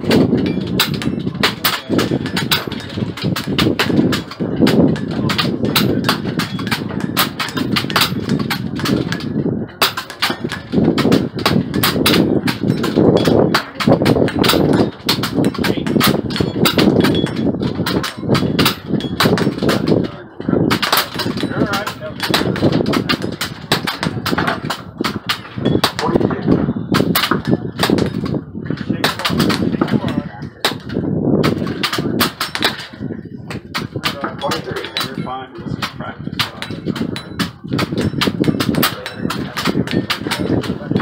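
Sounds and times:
air rifle shots: 0:00.0 - 0:20.0, 0:20.7 - 0:26.2.

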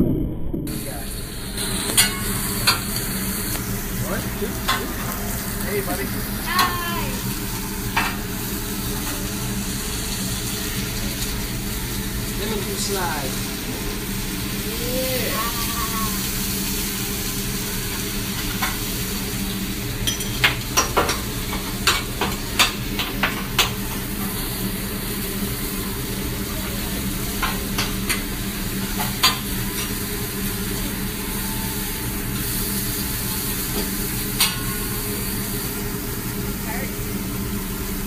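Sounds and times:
steady low hum: 0:00.0 - 0:18.4
food sizzling on a griddle: 0:00.7 - 0:38.0.

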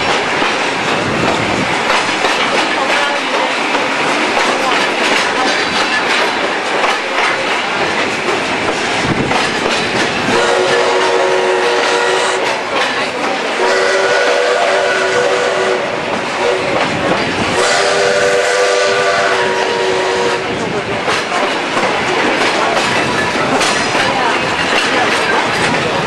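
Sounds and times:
train wheels clicking on rails: 0:00.0 - 0:26.0
steam locomotive whistle: 0:10.3 - 0:12.6, 0:13.5 - 0:16.9, 0:17.5 - 0:20.6.

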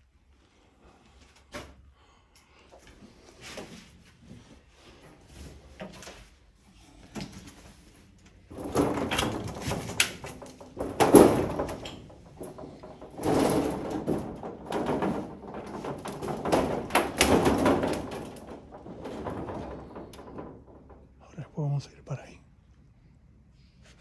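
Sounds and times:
corrugated metal sheeting clattering: 0:07.4 - 0:21.4.

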